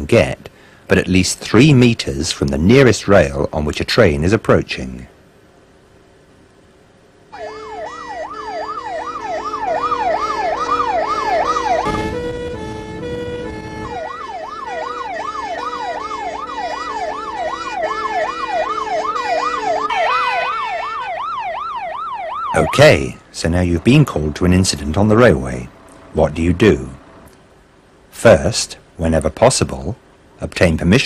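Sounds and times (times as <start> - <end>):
fast rising and falling siren: 7.3 - 22.8
two-tone siren: 7.3 - 22.8.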